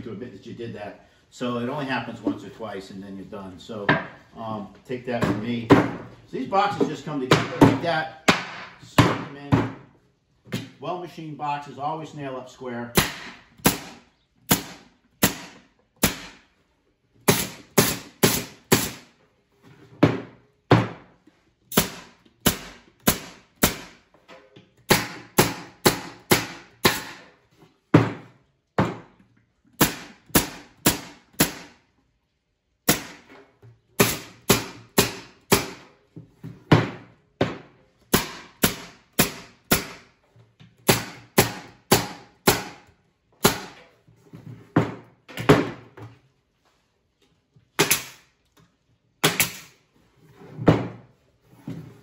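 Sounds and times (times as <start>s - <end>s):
pneumatic nail gun firing: 13.0s - 16.4s, 17.2s - 19.1s, 21.7s - 24.0s, 24.9s - 27.3s, 29.8s - 31.8s, 32.8s - 33.3s, 34.0s - 35.8s, 38.1s - 40.0s, 47.8s - 48.3s, 49.2s - 49.8s.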